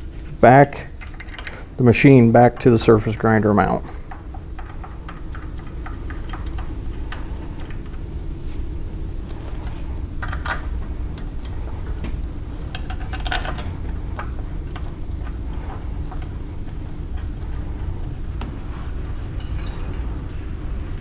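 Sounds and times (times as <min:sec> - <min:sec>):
steady low hum: 0:00.0 - 0:21.0
metal clicks and clinks: 0:19.4 - 0:20.1.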